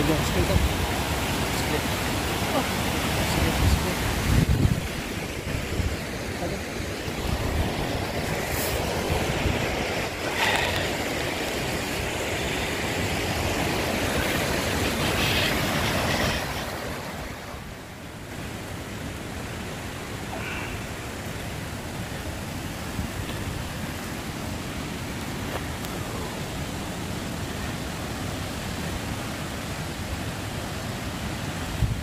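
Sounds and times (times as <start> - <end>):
waterfall rushing: 0.0 - 32.0
wind buffeting microphone: 3.4 - 6.1, 7.0 - 10.2.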